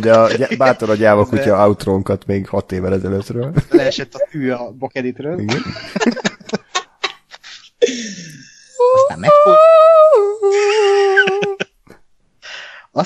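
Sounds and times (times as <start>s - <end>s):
person humming high notes: 8.8s - 11.6s.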